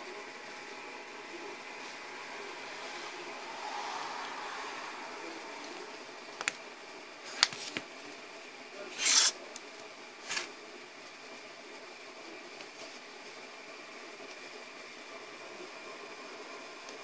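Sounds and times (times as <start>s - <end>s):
circuit board scraping on cardboard: 8.9s - 9.4s, 10.2s - 10.5s.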